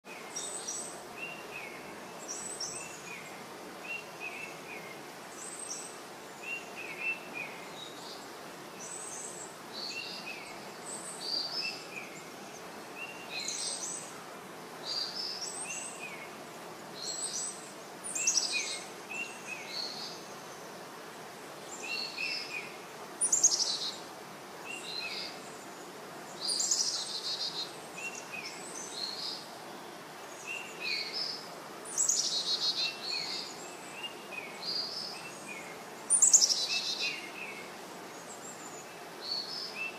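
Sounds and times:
low background noise: 0.0s - 39.9s
birds chirping: 14.8s - 39.9s.

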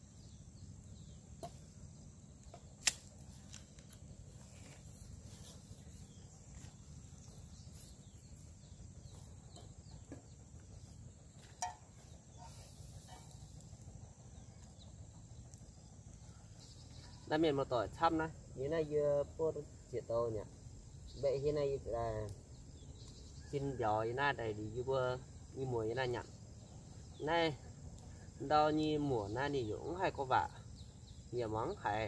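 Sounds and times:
low steady hum: 0.0s - 32.0s
campfire wood cracking: 0.1s - 17.2s, 22.2s - 23.6s.

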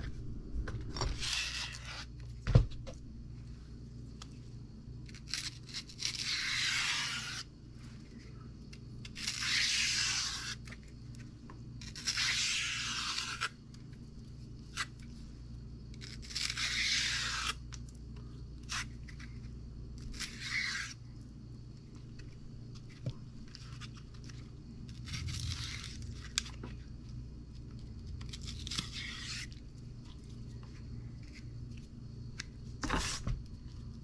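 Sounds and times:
steady low hum: 0.0s - 34.0s
knife tearing skin off stalk: 5.1s - 7.5s, 11.8s - 13.6s, 16.0s - 17.7s, 28.2s - 29.6s.

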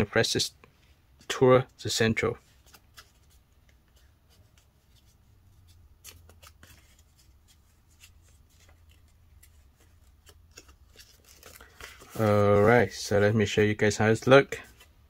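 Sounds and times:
paper crackling as creased: 2.5s - 13.1s.

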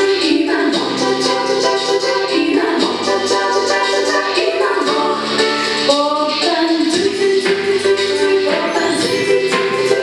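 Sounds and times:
upbeat backing track: 0.0s - 10.0s.

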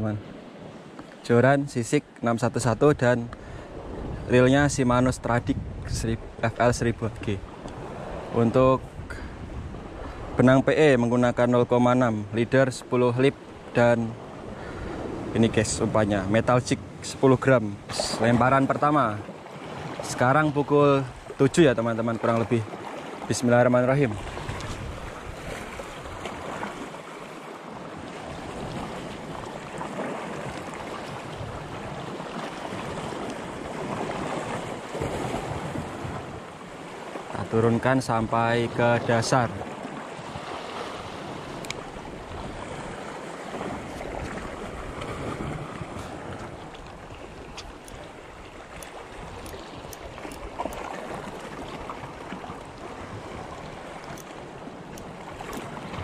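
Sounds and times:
small waves washing ashore: 0.0s - 56.0s
water lapping: 0.0s - 56.0s
wind on the microphone: 2.6s - 12.3s, 24.0s - 26.9s, 27.9s - 36.6s, 37.3s - 56.0s
faint light ticks: 41.6s - 41.8s, 46.4s - 48.0s, 48.7s - 50.9s, 54.0s - 55.7s.

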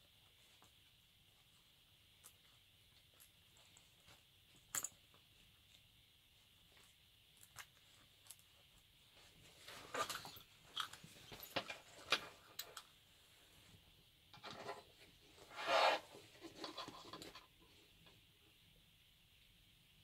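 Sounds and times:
rubber rustling and rubbing: 14.4s - 17.5s.

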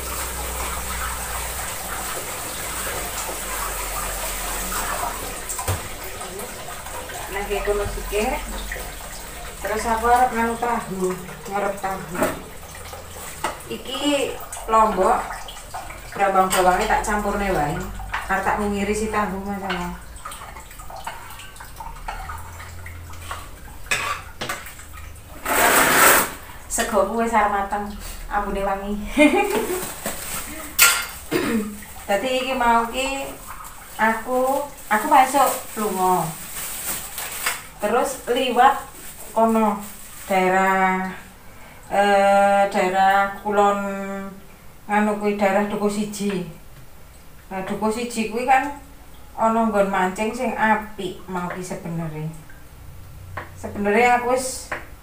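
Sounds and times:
tap water running into sink: 0.0s - 28.5s, 29.2s - 41.0s
crockery clinking: 30.8s - 31.2s.

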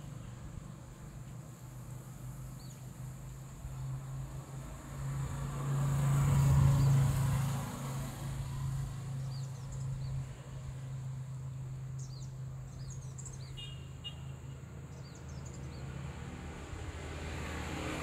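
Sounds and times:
vehicle engine passing: 3.8s - 10.8s, 15.7s - 18.0s.

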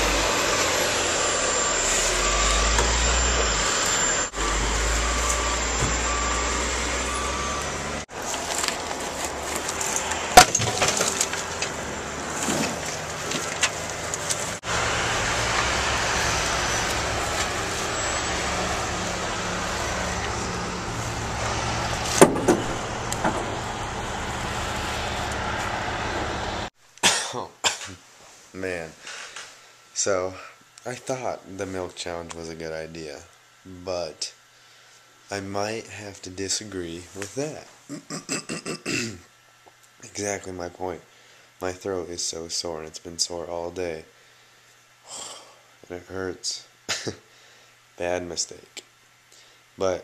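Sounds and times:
high reversing beeps: 0.0s - 8.0s, 14.7s - 24.6s
heavy machinery engine rumble: 4.3s - 26.7s
branches and debris clattering: 8.1s - 14.6s.

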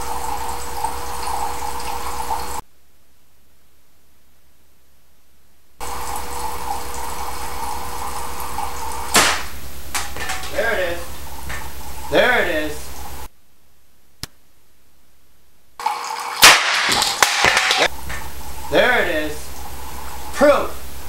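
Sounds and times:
water running and splashing: 0.0s - 2.6s, 5.8s - 13.3s, 15.8s - 21.0s.

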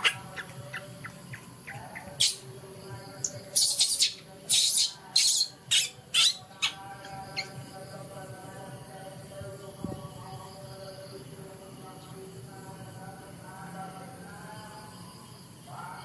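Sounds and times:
baby monkey screeching: 0.0s - 2.5s, 3.2s - 7.6s.

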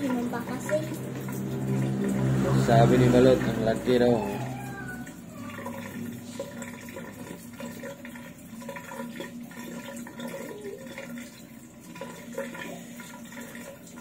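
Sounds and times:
tap water splashing into basin: 0.0s - 14.0s.

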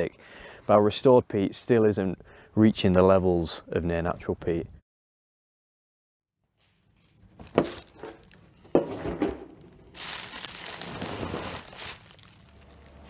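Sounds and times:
plastic bags crinkling: 7.4s - 8.4s, 9.7s - 13.0s.

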